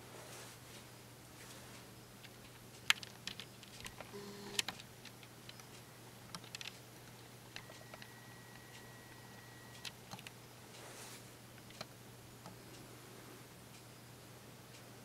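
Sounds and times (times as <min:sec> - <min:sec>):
faint low hum: 0:00.0 - 0:15.0
faint high steady tone: 0:04.0 - 0:04.7, 0:07.1 - 0:11.2.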